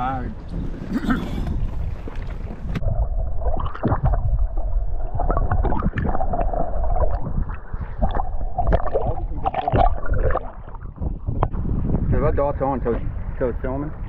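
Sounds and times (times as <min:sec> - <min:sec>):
underwater gurgling and sloshing: 0:00.0 - 0:14.0
steady hum: 0:00.5 - 0:12.1
underwater knocks: 0:05.2 - 0:11.6.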